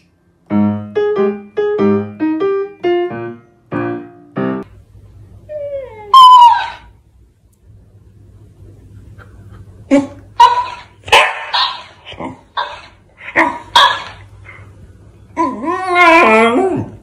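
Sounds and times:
dog whining: 5.5 - 7.0, 15.4 - 17.0
dog barking and yipping: 6.1 - 6.9, 9.9 - 14.2.

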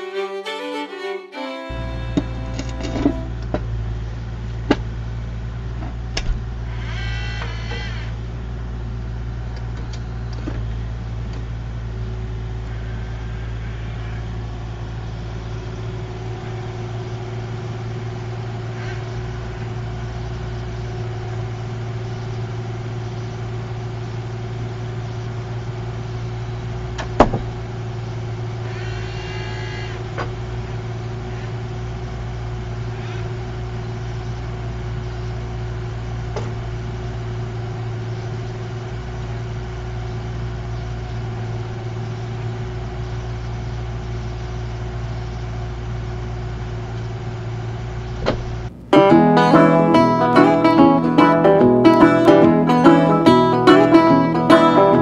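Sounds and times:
high-pitched hydraulic whine: 0.0 - 3.6
diesel engine running: 0.0 - 28.7, 30.0 - 55.0
short squeals: 6.7 - 8.2, 28.6 - 30.1.

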